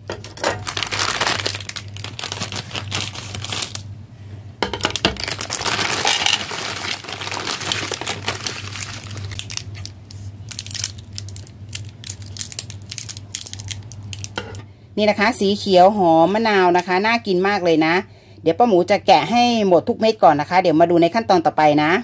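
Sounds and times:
scissors snipping wrapper: 0.2s - 3.8s, 5.2s - 14.4s
plastic bag crinkling: 0.2s - 3.9s, 4.8s - 14.6s
candies clattering onto plate: 4.6s - 9.6s, 10.5s - 14.6s.

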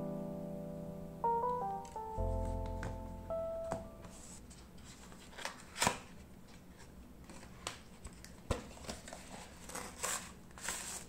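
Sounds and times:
paper and plastic rustling: 4.0s - 11.0s.

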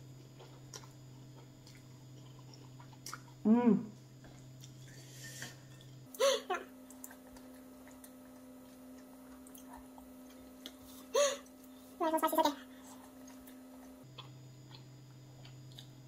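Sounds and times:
steady low hum: 0.0s - 16.0s
person chewing: 0.3s - 3.4s, 4.2s - 6.0s, 6.8s - 11.1s, 12.8s - 16.0s.

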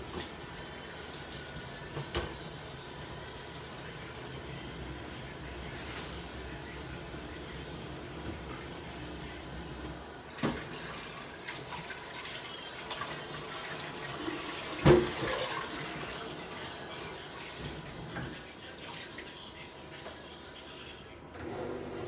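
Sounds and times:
tap water running into sink: 10.3s - 18.4s.

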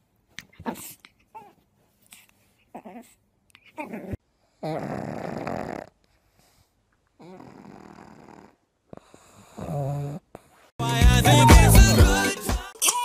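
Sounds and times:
dog snoring: 4.6s - 6.6s, 7.2s - 10.6s.

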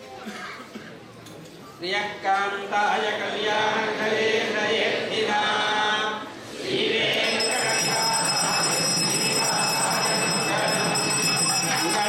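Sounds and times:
voices chanting: 3.0s - 12.0s
bell ringing: 7.2s - 12.0s.

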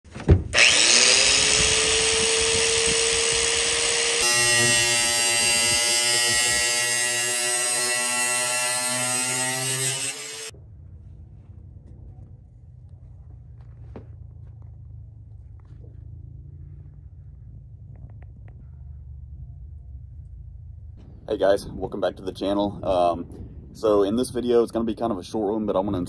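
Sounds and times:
angle grinder cutting metal: 0.5s - 10.5s.

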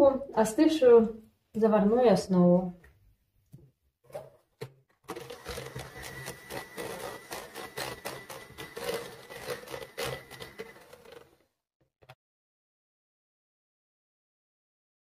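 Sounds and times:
electric hand mixer whining: 5.0s - 11.6s.

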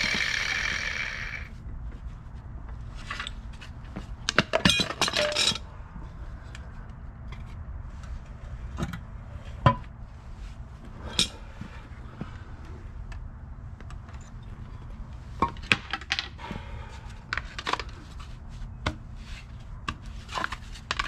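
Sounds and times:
metal tools clinking on concrete: 4.4s - 5.7s, 11.0s - 11.5s.

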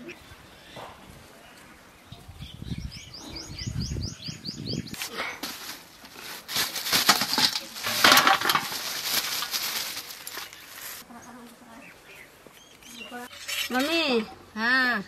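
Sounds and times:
bird chirping: 0.0s - 5.0s, 10.4s - 14.3s
plastic bag crinkling: 5.0s - 11.0s.

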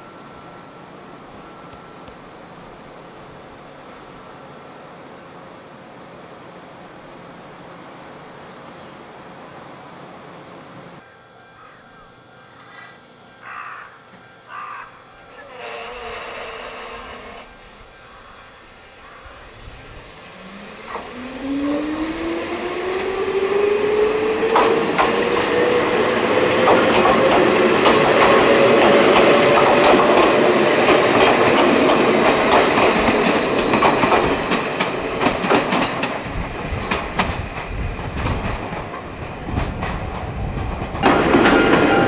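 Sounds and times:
electric train motor whine: 0.0s - 41.1s
train wheels clicking over rail joints: 19.0s - 42.0s.

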